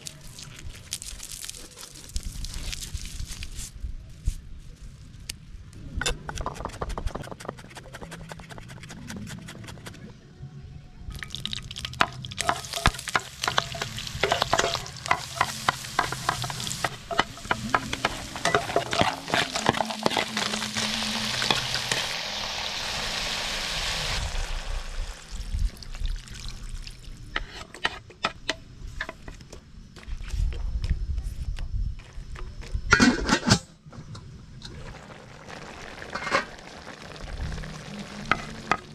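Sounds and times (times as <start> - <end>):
food sizzling in oil: 11.2 - 26.6, 34.8 - 38.9.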